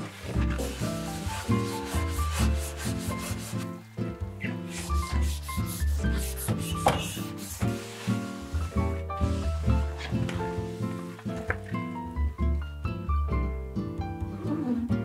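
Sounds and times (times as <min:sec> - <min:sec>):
cloth rubbing on metal: 0:00.0 - 0:03.8, 0:04.7 - 0:11.2
background music: 0:00.0 - 0:15.0.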